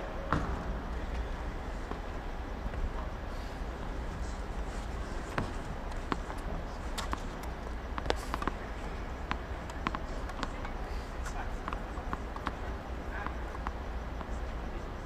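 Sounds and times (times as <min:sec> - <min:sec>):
steady background hum: 0:00.0 - 0:15.0
tennis ball bouncing: 0:05.3 - 0:14.8.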